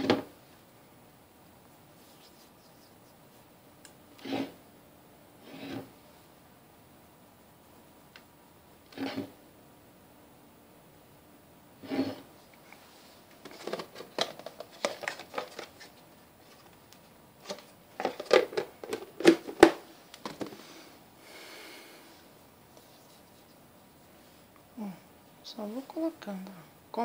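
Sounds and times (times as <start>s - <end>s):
hands handling craft materials: 12.7s - 20.6s.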